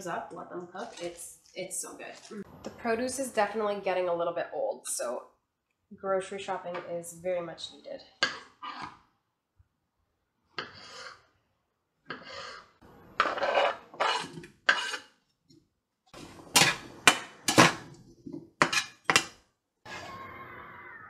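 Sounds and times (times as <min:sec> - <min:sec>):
vegetables scraped into skillet: 0:12.1 - 0:15.2, 0:16.2 - 0:19.3
knife on wooden cutting board: 0:13.2 - 0:15.1.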